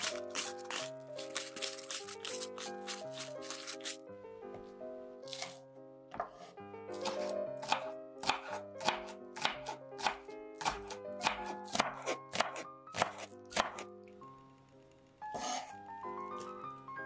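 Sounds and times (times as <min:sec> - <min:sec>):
knife chopping on wooden board: 0:00.0 - 0:03.8, 0:05.3 - 0:13.9
light background music: 0:00.0 - 0:17.0.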